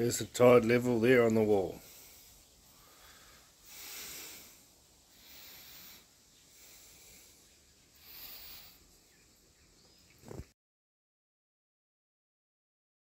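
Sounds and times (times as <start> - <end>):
soft breathing: 1.6 - 9.3.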